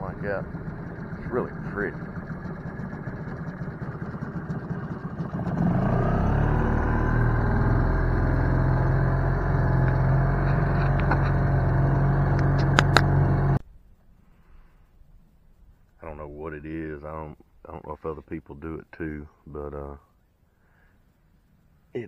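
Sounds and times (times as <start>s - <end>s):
outboard motor running: 0.0s - 13.6s.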